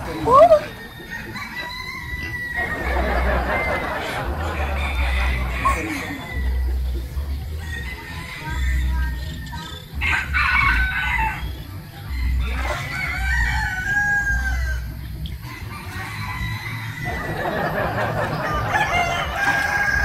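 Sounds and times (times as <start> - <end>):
roosters crowing: 0.0 - 20.0.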